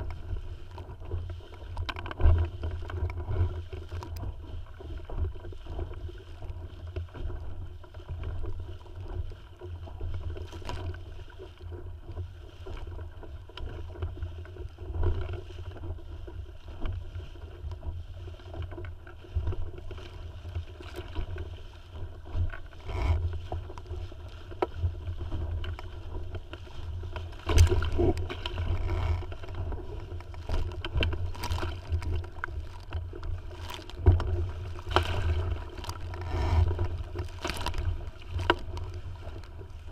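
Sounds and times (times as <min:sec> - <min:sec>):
water splashing against hull: 0:00.0 - 0:39.9
low wind rumble: 0:18.6 - 0:39.9.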